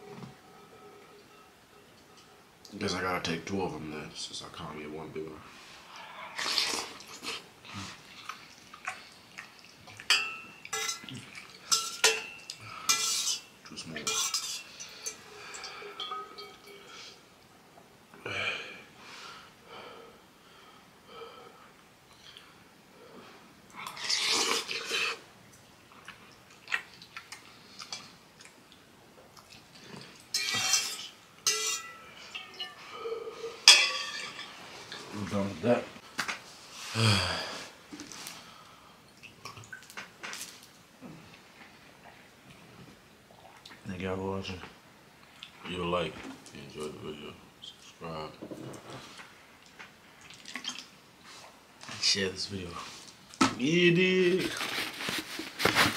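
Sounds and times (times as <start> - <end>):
slurping and chewing noodles: 6.3 - 9.5, 23.8 - 25.2
metal fork clinking on pot: 10.1 - 11.1, 11.7 - 16.8, 30.3 - 32.7.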